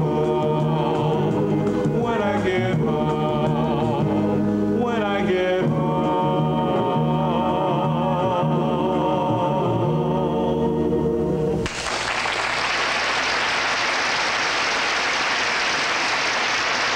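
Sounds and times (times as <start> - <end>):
vocal trio singing chord: 0.0 - 11.6
musical accompaniment: 0.0 - 12.8
applause: 11.6 - 16.9.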